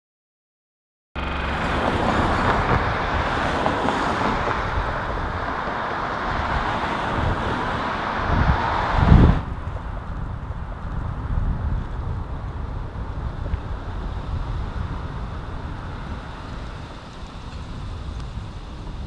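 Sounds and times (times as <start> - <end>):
cars passing on busy street: 1.2 - 19.0.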